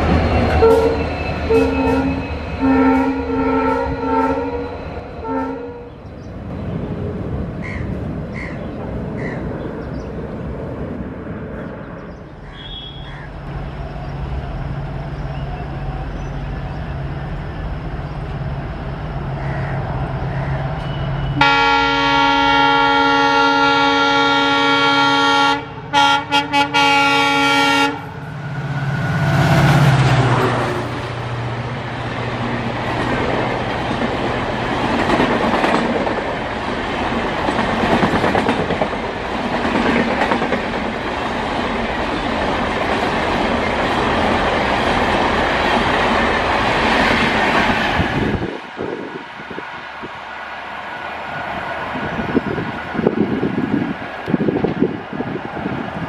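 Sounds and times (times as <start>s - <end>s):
diesel locomotive passing: 0.0s - 56.0s
train wheel and track noise: 0.0s - 56.0s
locomotive horn blast: 0.5s - 6.0s, 12.6s - 13.2s, 20.8s - 28.2s.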